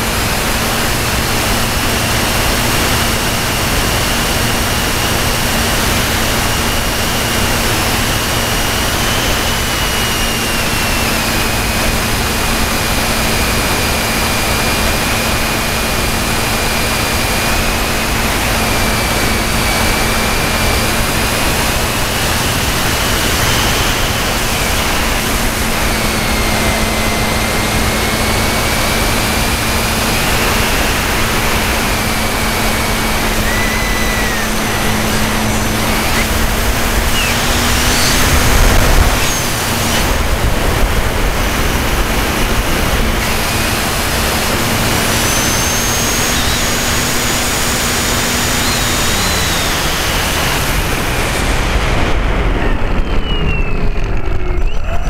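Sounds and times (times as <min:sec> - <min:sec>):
model airplane motor whine: 0:00.0 - 0:55.0
wind rushing over camera: 0:19.8 - 0:43.8, 0:50.2 - 0:55.0.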